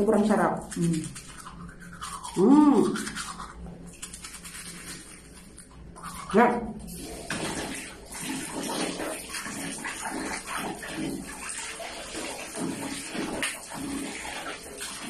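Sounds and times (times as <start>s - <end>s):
water running and splashing: 6.0s - 15.0s.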